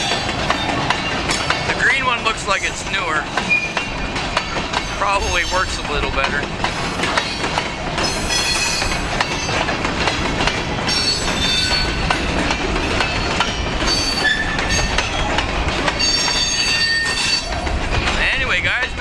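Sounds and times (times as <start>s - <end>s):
steel wheels rumbling on rail: 0.0s - 19.0s
wheels clacking over rail joints: 0.0s - 19.0s
high-pitched wheel squeals: 13.9s - 14.9s, 16.0s - 17.5s.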